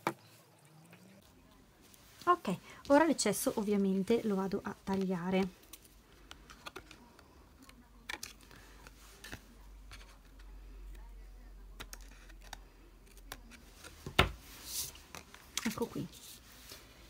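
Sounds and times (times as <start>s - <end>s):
scissors snipping paper: 11.8s - 14.0s.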